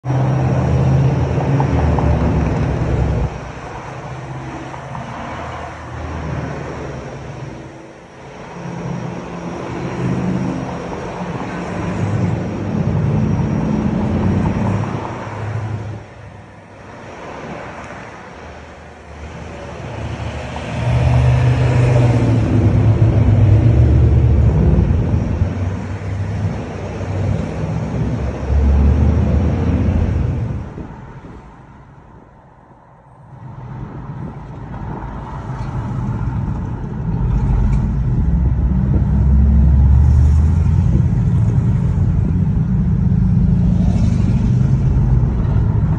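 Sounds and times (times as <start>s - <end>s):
vehicles driving past: 0.0s - 45.9s.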